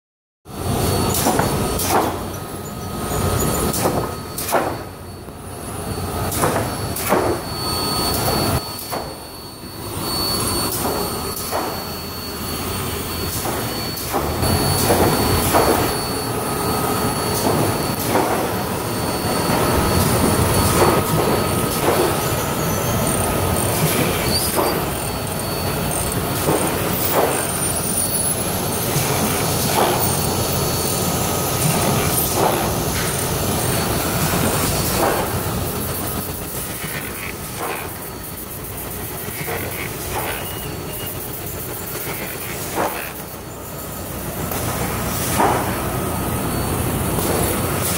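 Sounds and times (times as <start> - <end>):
steady machine noise: 0.5 - 47.9
knocks and clatter of conveyor: 0.6 - 5.1, 6.2 - 9.3, 10.1 - 12.1, 12.7 - 47.9.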